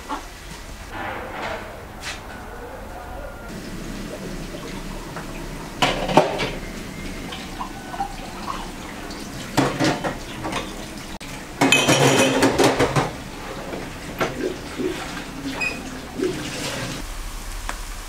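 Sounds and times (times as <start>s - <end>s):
dishes clattering and clinking: 3.5s - 17.0s
tap water running into sink: 4.1s - 17.0s.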